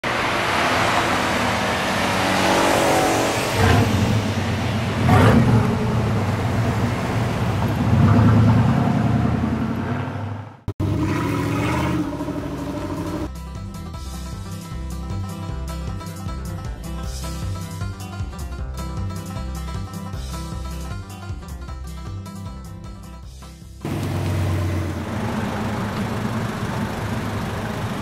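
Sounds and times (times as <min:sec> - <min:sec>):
van engine accelerating: 0:00.0 - 0:13.3, 0:23.8 - 0:28.0.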